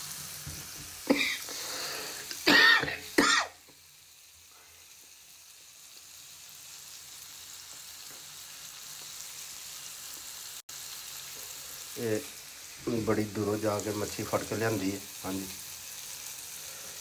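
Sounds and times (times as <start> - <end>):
food sizzling in a frying pan: 0.0 - 17.0
man clearing his throat: 2.4 - 3.6.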